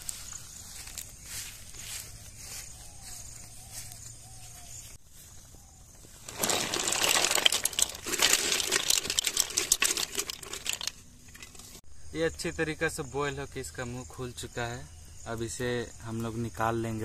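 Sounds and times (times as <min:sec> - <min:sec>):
mussel shells clattering in water: 0:06.2 - 0:11.8.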